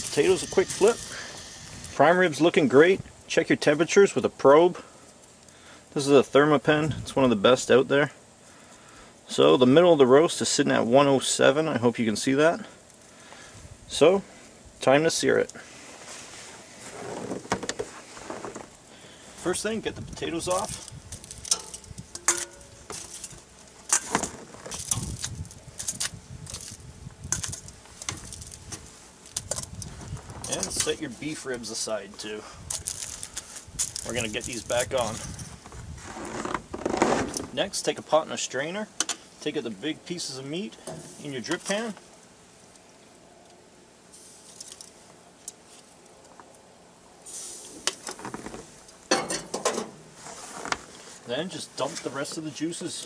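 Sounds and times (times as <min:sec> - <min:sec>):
metal tongs clicking and scraping: 0:21.4 - 0:23.3
metal bowl ringing: 0:21.5 - 0:22.7.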